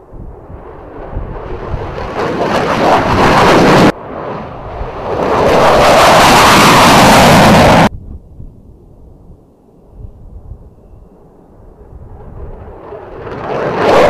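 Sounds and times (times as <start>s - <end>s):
fighter jet engine roar: 0.0s - 7.9s, 11.2s - 14.0s.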